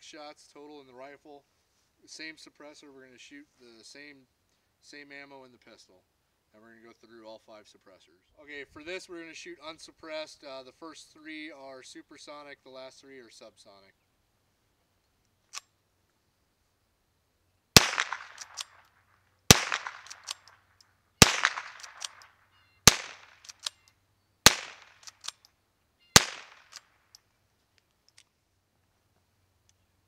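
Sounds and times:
rifle shots with echo: 0:17.8 - 0:18.8, 0:19.5 - 0:20.5, 0:21.2 - 0:23.7, 0:24.4 - 0:25.3, 0:26.2 - 0:26.8
faint click: 0:29.6 - 0:29.9.

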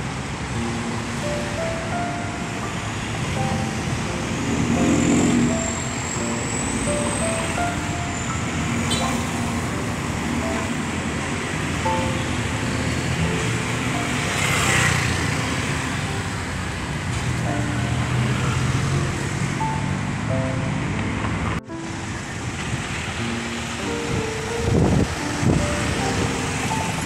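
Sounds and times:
street traffic: 0:00.0 - 0:27.0
background music: 0:00.6 - 0:21.0, 0:23.2 - 0:27.0.

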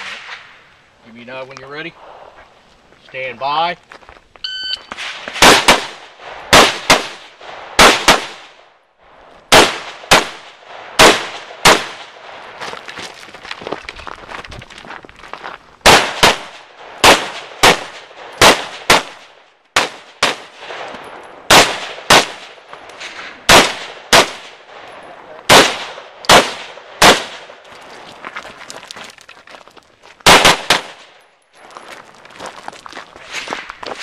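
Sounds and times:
carbine gunshots: 0:04.9 - 0:08.6, 0:09.5 - 0:12.4, 0:15.8 - 0:27.6, 0:30.2 - 0:31.2.

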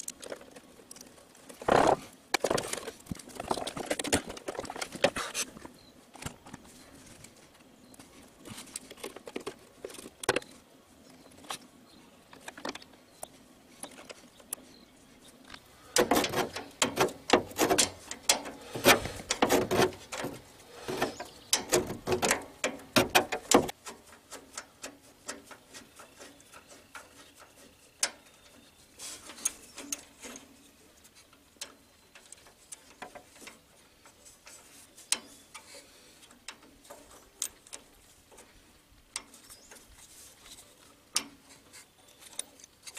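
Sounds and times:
hand tools clicking and clattering: 0:15.9 - 0:30.6.

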